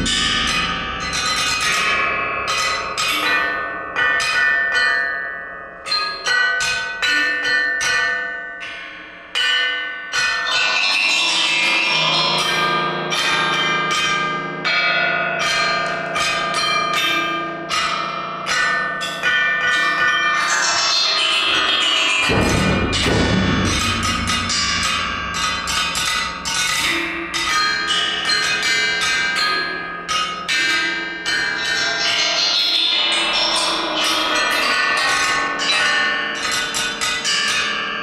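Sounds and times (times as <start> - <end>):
bell-like metal percussion strokes: 0.0 - 38.0
pitched ensemble texture: 22.2 - 25.9.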